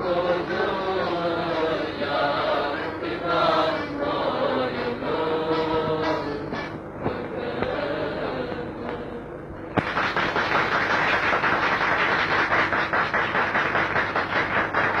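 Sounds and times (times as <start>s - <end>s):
audience applause: 9.8s - 15.0s.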